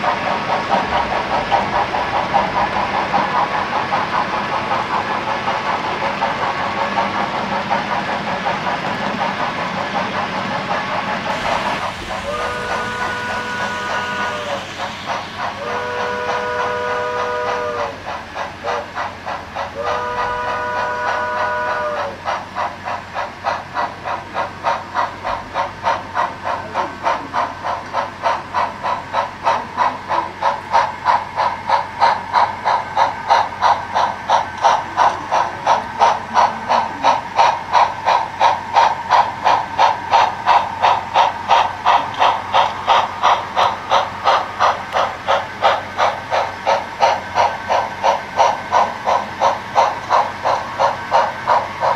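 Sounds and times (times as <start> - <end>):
steam exhaust chuffing: 0.0 - 51.9
steam locomotive chime whistle: 11.3 - 15.0, 15.6 - 18.0, 19.8 - 22.2.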